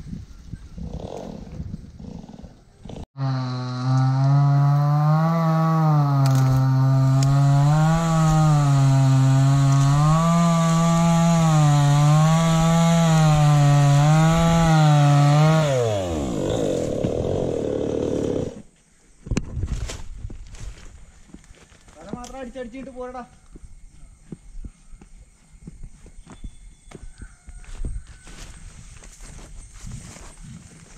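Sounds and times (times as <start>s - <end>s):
chainsaw cutting wood: 3.2s - 18.7s.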